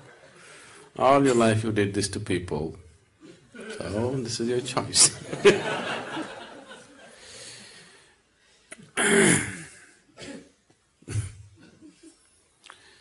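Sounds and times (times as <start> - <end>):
laughter: 5.1 - 7.2, 11.2 - 12.3.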